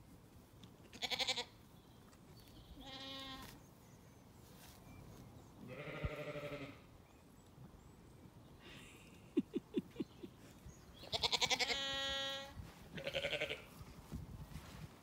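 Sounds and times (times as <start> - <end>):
sheep bleating: 1.0 - 1.5, 2.8 - 3.5, 5.7 - 6.8, 11.1 - 13.7.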